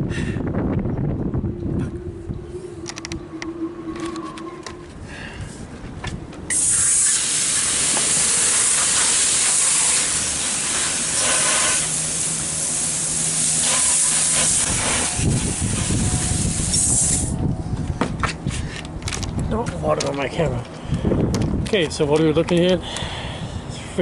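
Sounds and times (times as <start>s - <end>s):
hose nozzle spraying water: 6.5s - 17.3s.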